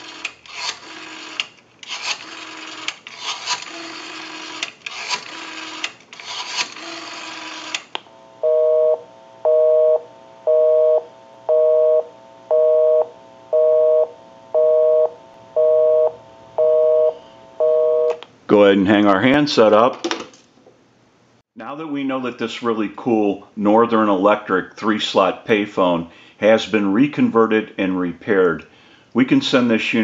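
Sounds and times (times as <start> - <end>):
rotary phone dial whirring and clicking: 0.0 - 8.0
busy signal beeping: 8.4 - 18.2.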